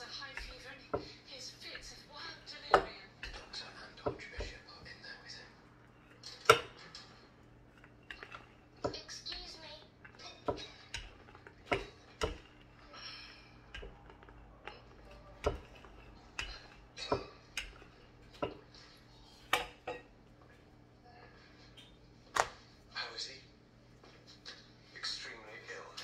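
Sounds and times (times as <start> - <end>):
rolling pin rolling dough: 0.0 - 20.8.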